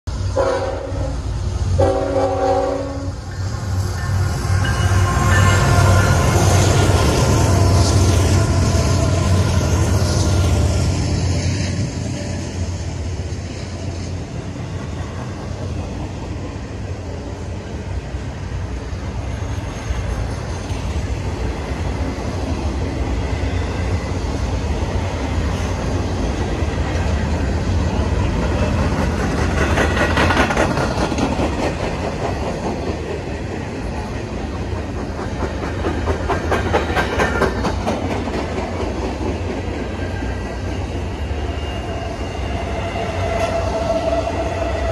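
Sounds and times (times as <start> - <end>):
train wheels rumbling on rail: 0.0 - 44.9.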